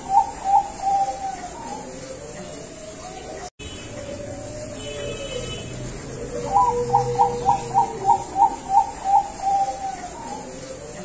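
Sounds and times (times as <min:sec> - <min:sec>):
dove cooing: 0:00.0 - 0:11.0.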